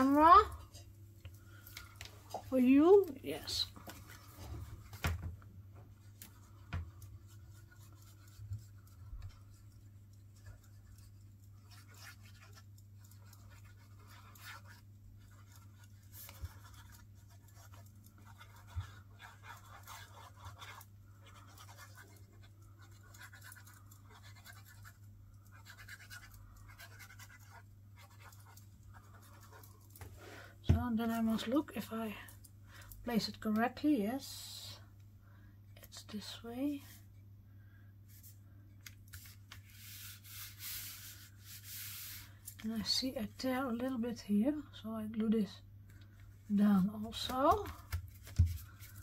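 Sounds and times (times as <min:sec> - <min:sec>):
paper rustling and scratching: 0:06.0 - 0:30.1, 0:38.1 - 0:42.6, 0:47.1 - 0:49.0.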